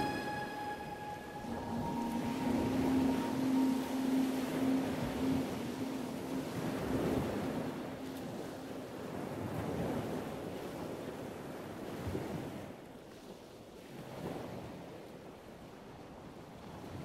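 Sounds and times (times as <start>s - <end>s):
ocean surf rushing: 0.0s - 12.1s.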